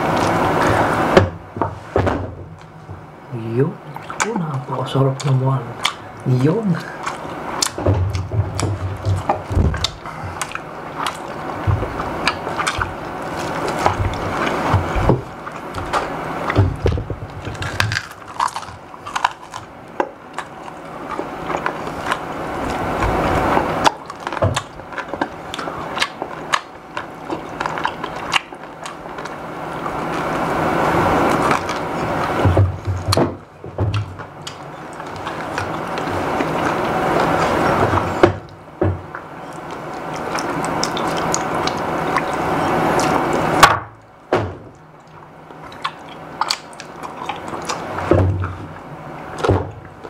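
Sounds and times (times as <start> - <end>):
soft mouth sounds: 3.8 - 33.3
chewing and crunching: 3.8 - 43.7, 44.7 - 50.0.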